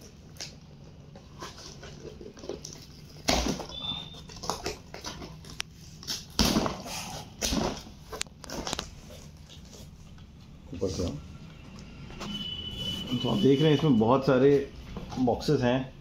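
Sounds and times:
cardboard rustling and scraping: 0:01.2 - 0:10.2.

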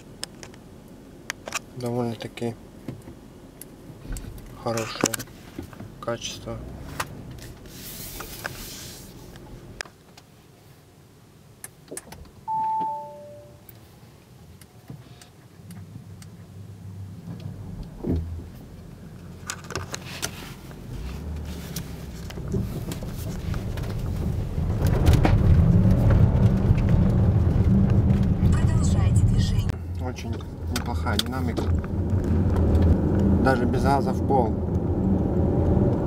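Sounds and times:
car engine and road rumble: 0:00.0 - 0:36.0
two-note dashboard chime: 0:12.5 - 0:13.7.

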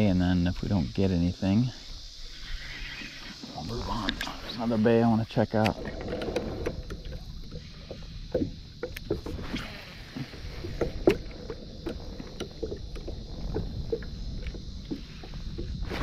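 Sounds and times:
wind rumble on microphone: 0:03.6 - 0:16.0
waves slapping against hull: 0:04.2 - 0:16.0.

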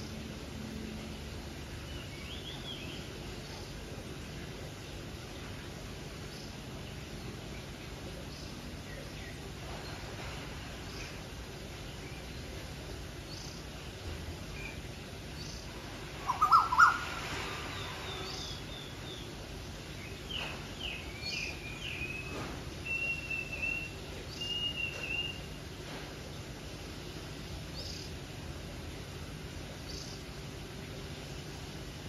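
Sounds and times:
birds calling: 0:14.7 - 0:26.5.

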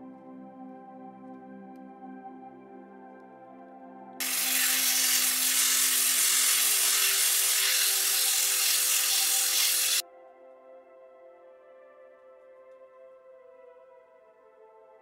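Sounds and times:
soft ambient music: 0:00.0 - 0:15.0
sandpaper rubbing on wood: 0:04.2 - 0:10.0.

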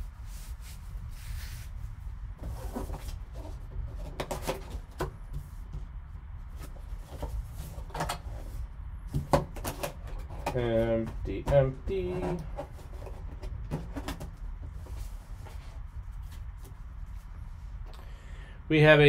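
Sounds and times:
steady low hum: 0:00.0 - 0:19.0
cardboard box scraping and crinkling: 0:02.4 - 0:04.9.

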